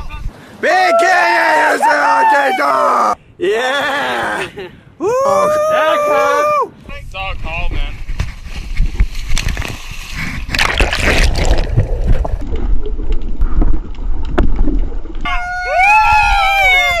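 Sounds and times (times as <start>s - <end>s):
person whooping: 0.8s - 6.7s, 15.2s - 17.0s
wind rumbling on microphone: 6.4s - 17.0s
water splashing and sloshing: 8.1s - 15.5s.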